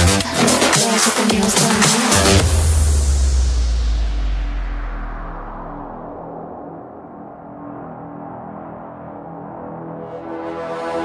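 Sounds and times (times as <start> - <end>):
electronic dance music: 0.0 - 3.3.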